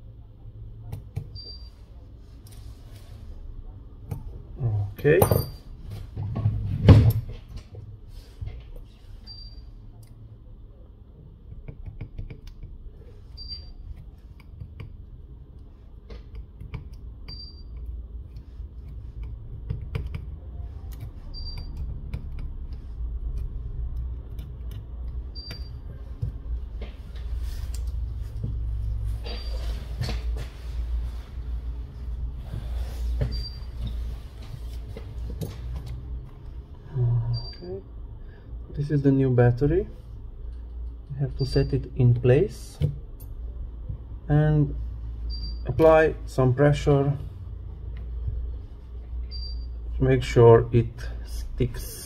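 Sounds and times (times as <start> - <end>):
steady low hum: 0.0 - 52.0
tweezers clicking and tapping: 13.9 - 15.0, 16.1 - 26.4.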